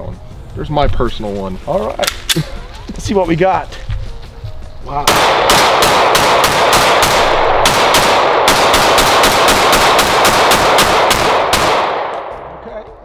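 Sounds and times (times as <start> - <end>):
rapid pistol fire: 5.1 - 12.3.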